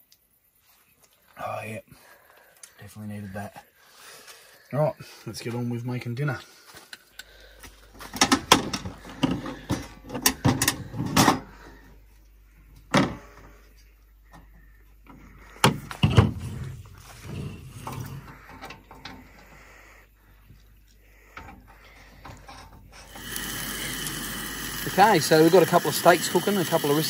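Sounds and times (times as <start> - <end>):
cooking gear knocking and clattering: 8.1 - 11.5.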